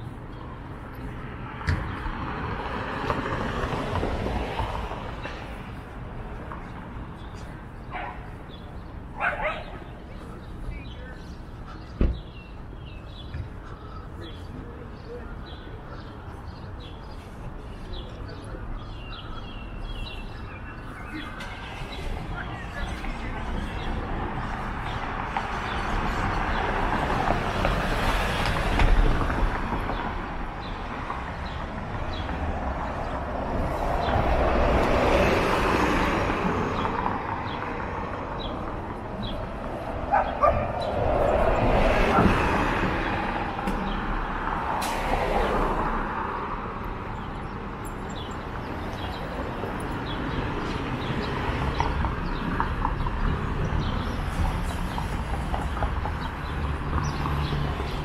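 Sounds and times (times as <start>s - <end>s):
vehicles passing: 0.0s - 58.0s.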